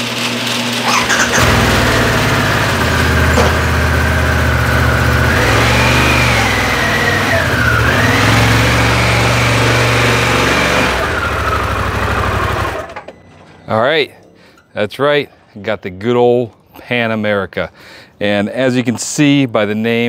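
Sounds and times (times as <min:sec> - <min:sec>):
motorcycle engine at low revs: 0:00.0 - 0:13.1.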